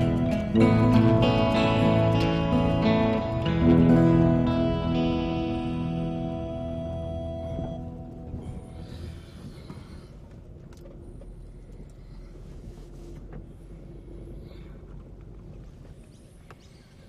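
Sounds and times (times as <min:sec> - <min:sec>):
car engine hum: 0:00.0 - 0:17.0.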